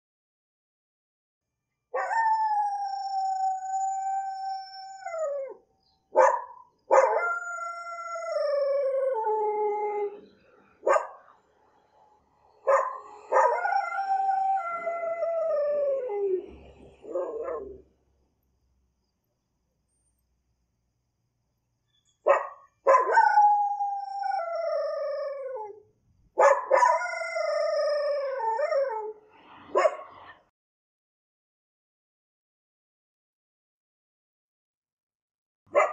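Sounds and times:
dog yelping: 12.7s - 13.6s, 17.0s - 17.8s
dog howling: 12.7s - 17.8s.

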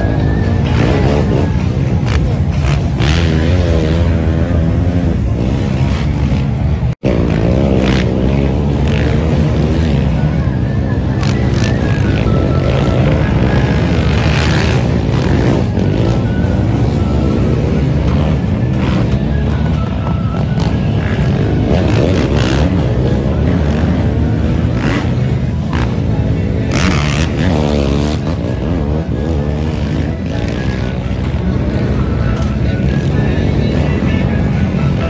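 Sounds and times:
quad engines revving: 0.0s - 35.0s
music: 7.2s - 35.0s.

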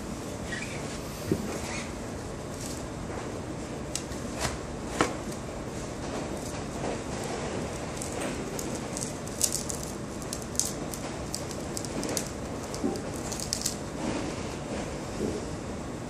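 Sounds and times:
potter's wheel running: 6.3s - 14.1s.

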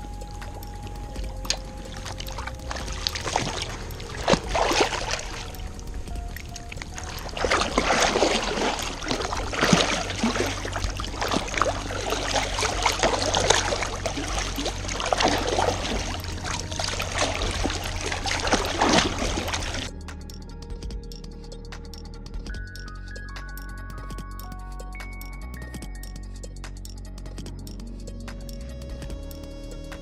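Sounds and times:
water slapping and dripping: 0.0s - 19.9s
paddle splashing into water: 1.5s - 19.9s.

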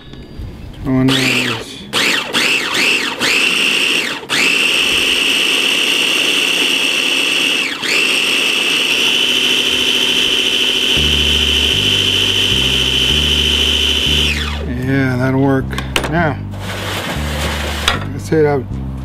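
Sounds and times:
food processor motor whining: 1.1s - 14.7s, 16.6s - 17.9s.

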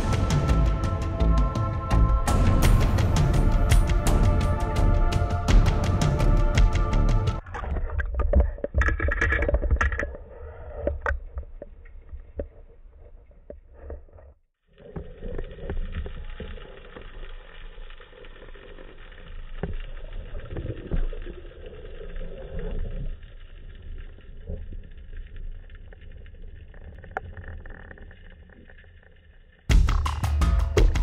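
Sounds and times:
music: 0.0s - 7.4s, 29.7s - 31.0s
underwater rumble of moving water: 0.0s - 30.1s
clicks and crackles: 7.4s - 29.7s.

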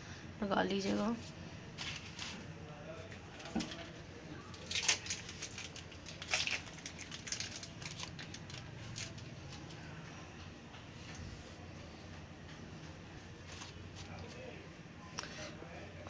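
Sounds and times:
crinkling rustles: 0.9s - 2.5s, 3.1s - 9.9s, 13.4s - 14.6s.

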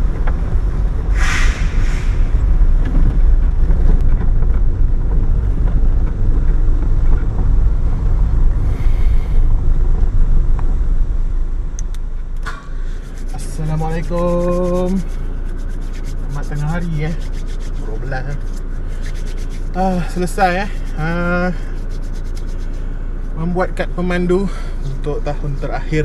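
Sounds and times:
car engine and road rumble: 0.0s - 26.0s
short hissing noises: 1.1s - 2.4s.

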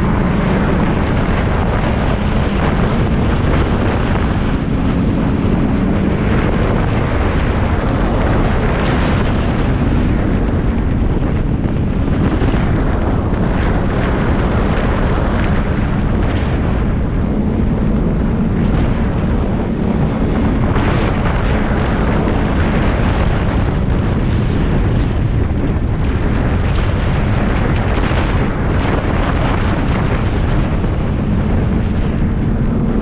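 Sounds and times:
snowmobile engine and track: 0.0s - 33.0s
wind buffeting microphone: 0.0s - 33.0s.

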